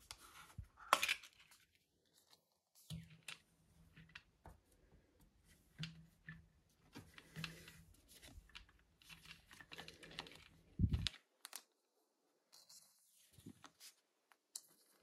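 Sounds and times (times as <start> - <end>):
plastic sleeves rustling: 0.0 - 11.8.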